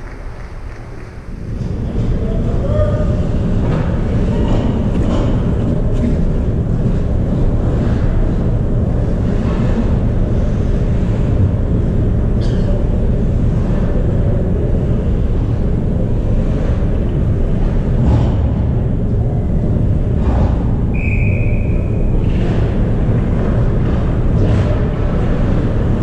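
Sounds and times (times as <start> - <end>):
low rink rumble: 0.0 - 26.0
whistle blast: 20.9 - 22.0.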